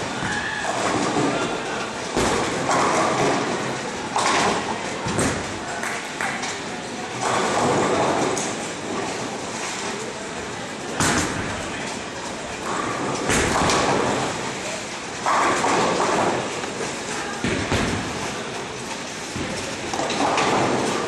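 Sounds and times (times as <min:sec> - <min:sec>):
bowling balls knocking: 0:00.6 - 0:06.6, 0:11.0 - 0:14.6, 0:15.2 - 0:21.0
bowling pins clattering: 0:00.6 - 0:10.2, 0:10.8 - 0:21.0.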